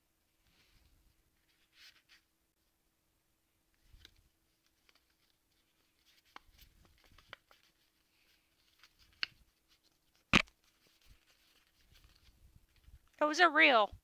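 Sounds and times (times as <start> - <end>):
trading cards rustling: 4.0 - 13.1.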